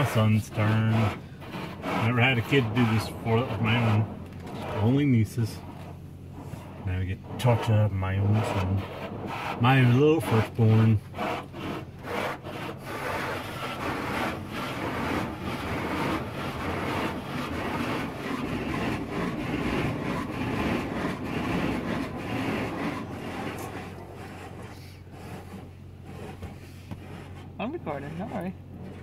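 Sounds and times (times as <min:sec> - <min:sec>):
car wash spraying water: 0:00.0 - 0:29.0.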